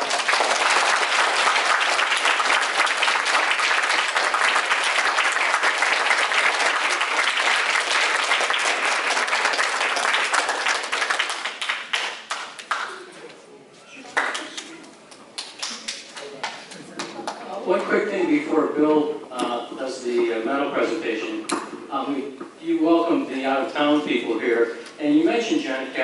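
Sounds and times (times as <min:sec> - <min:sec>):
audience applauding: 0:00.0 - 0:13.1, 0:14.0 - 0:17.4.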